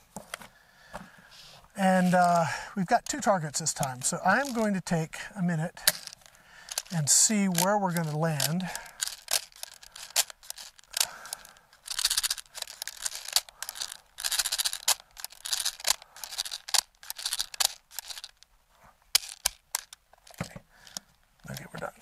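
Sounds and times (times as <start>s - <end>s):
steel bbs rattling and clicking: 2.0s - 18.5s, 19.1s - 21.9s.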